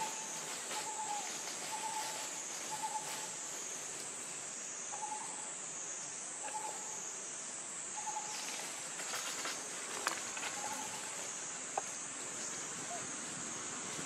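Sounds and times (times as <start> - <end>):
rustling in dry leaves: 0.0 - 4.5, 8.2 - 14.0.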